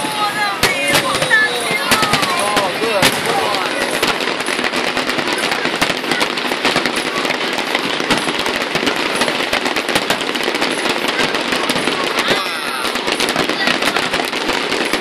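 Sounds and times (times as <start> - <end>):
fireworks crackling and popping: 0.0 - 15.0
loud firework bangs: 0.0 - 15.0.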